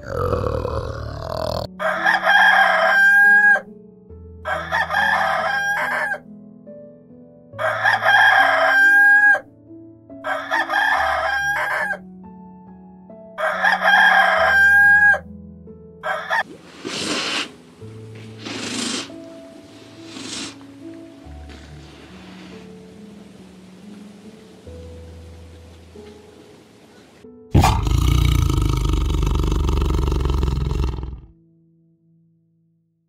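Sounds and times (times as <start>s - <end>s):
soft background music: 0.0s - 30.1s
rooster crowing: 0.1s - 3.6s, 4.5s - 6.2s, 7.6s - 9.5s, 10.2s - 12.0s, 13.4s - 15.2s, 16.0s - 16.5s.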